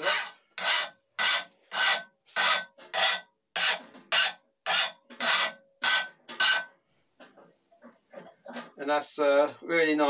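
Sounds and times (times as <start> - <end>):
file rasping on steel blade: 0.0 - 6.7.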